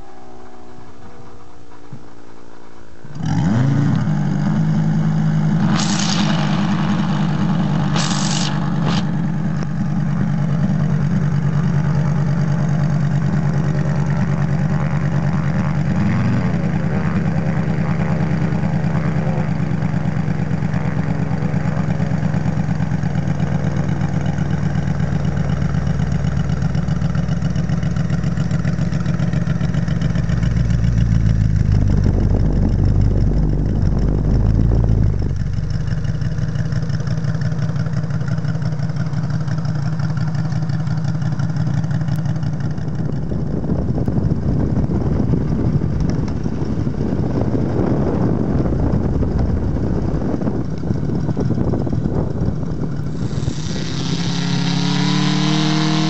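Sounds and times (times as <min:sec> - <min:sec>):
model radial engine idling: 0:00.0 - 0:56.0
short hisses: 0:05.7 - 0:09.2, 0:53.2 - 0:56.0.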